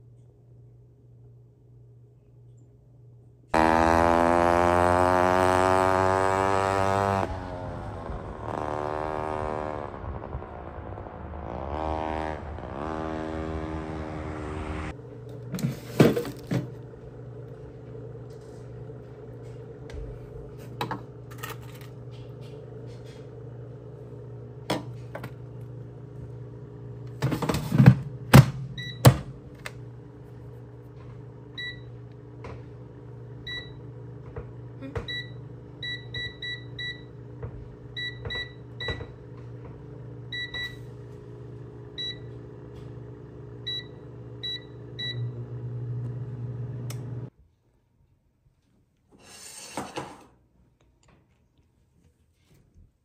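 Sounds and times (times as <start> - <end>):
steady low hum: 7.0 - 47.3.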